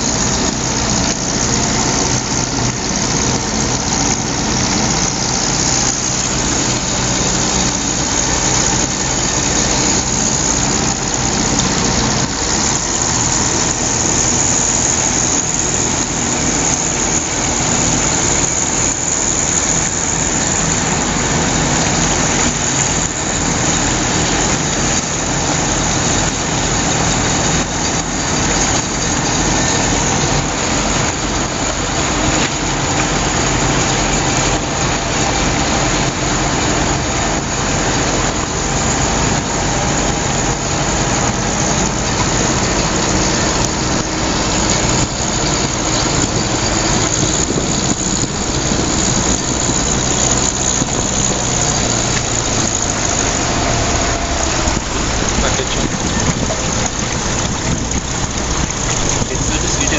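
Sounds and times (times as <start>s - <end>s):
car engine running: 0.0s - 59.9s
water rushing: 0.0s - 59.9s.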